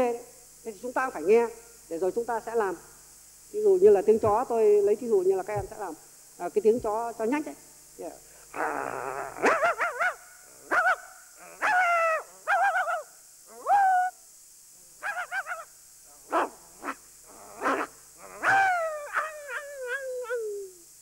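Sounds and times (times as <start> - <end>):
man imitating dog barks: 8.6 - 14.2, 15.0 - 20.8.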